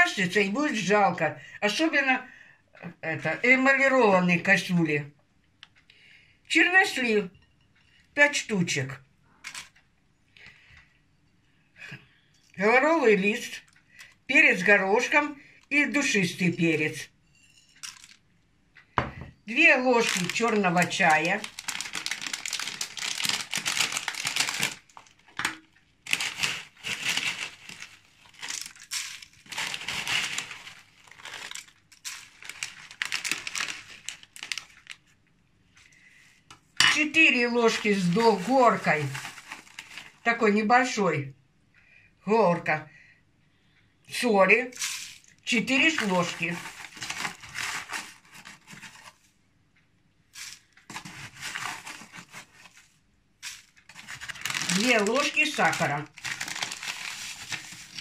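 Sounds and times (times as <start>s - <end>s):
packaging crinkling: 17.8s - 18.2s, 19.5s - 35.1s, 37.7s - 40.3s, 44.7s - 49.2s, 50.4s - 58.0s
salt scraping and rustling: 26.1s - 34.6s, 53.4s - 58.0s.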